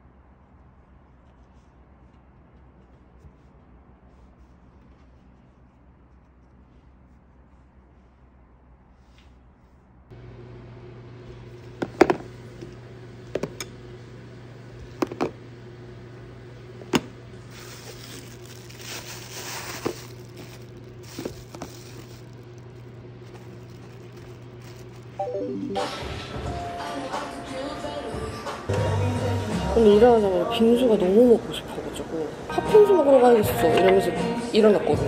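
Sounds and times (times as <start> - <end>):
steady low hum: 0.0 - 26.8
plastic containers clicking and knocking: 11.8 - 12.3, 15.0 - 15.3
bag lining rustling: 17.5 - 25.3.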